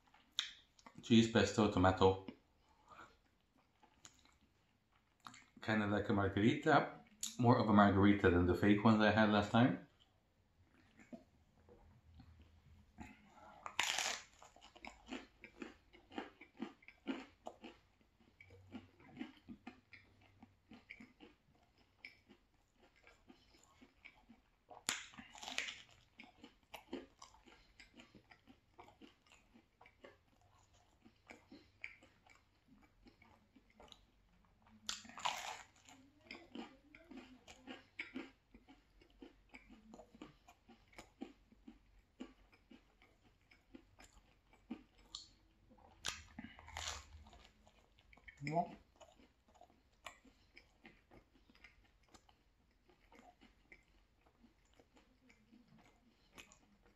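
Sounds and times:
chewing: 0.0s - 5.6s, 9.4s - 56.9s
pizza crunching bites: 12.2s - 56.9s.

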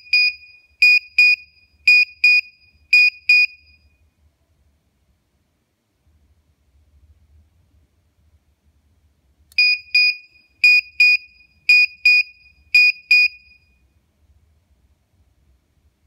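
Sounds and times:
electronic buzzer double beeps: 9.6s - 13.7s.

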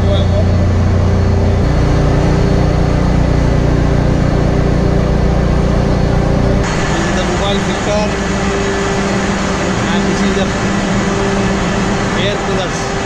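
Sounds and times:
marine diesel engine drone: 0.0s - 13.0s.

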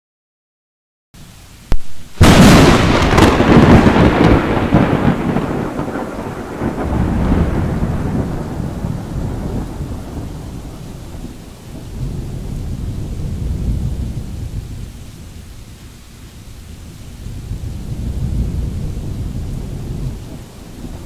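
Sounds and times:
thunder crack: 1.7s - 14.3s
thunder rumble: 1.7s - 15.8s, 16.4s - 21.0s.

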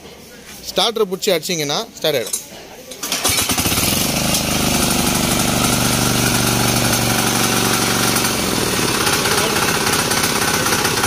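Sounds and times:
diesel engine running: 3.2s - 11.0s.

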